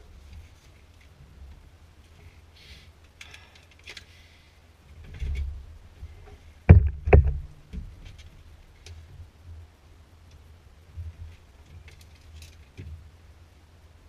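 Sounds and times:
loud dull thumps: 0:06.7 - 0:08.0.

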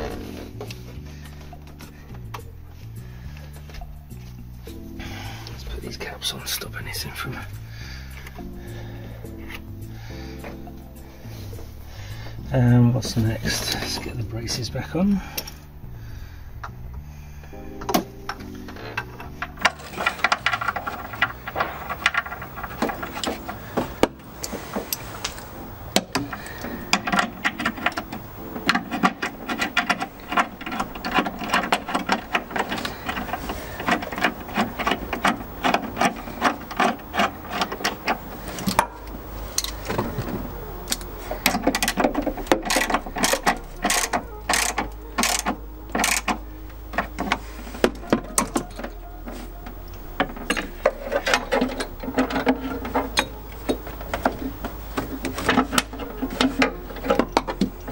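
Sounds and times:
socket ratchet clicking: 0:40.8 - 0:47.4.

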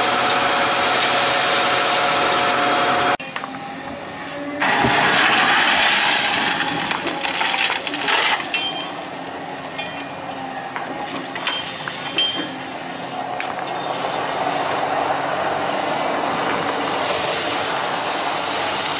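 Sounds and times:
excavator diesel engine hum: 0:00.0 - 0:18.9
gravel pouring onto a pile: 0:04.6 - 0:08.4.

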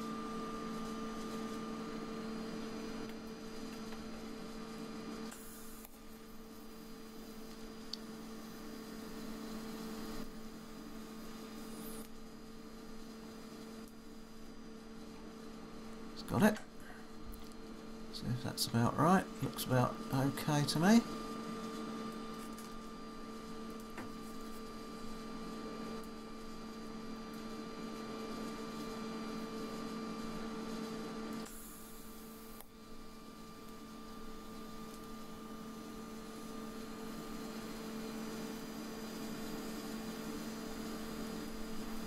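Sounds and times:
welder electrical hum: 0:00.0 - 0:42.0.

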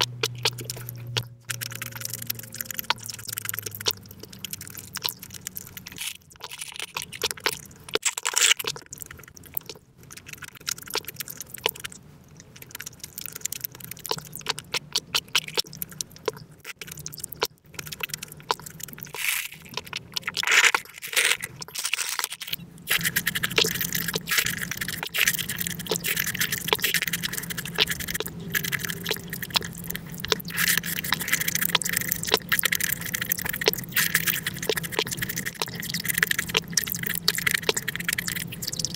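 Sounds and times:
drinking through a straw: 0:00.0 - 0:38.9
sped-up chewing and smacking: 0:00.0 - 0:38.9.

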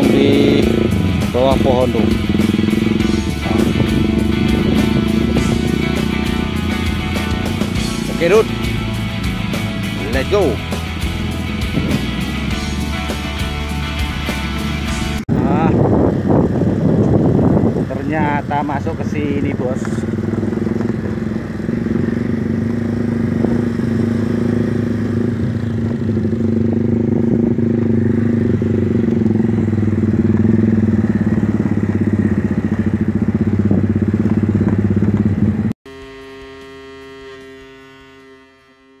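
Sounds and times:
held musical chord: 0:00.0 - 0:15.2, 0:35.9 - 0:39.0
motorcycle engine running: 0:00.0 - 0:39.0.

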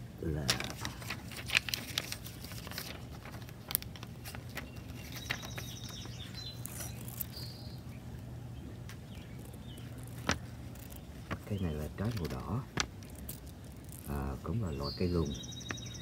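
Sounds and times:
steady low hum: 0:00.0 - 0:16.0
plastic tag clicks and rustles: 0:00.4 - 0:07.3, 0:09.4 - 0:14.1
faint bird chirps: 0:04.2 - 0:16.0.

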